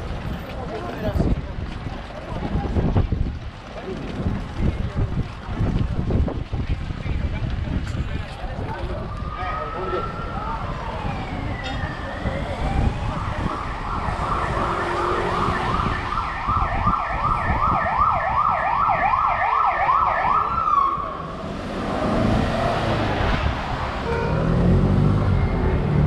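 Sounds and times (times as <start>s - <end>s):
street traffic noise: 0.0s - 26.0s
emergency siren yelping: 9.0s - 21.3s.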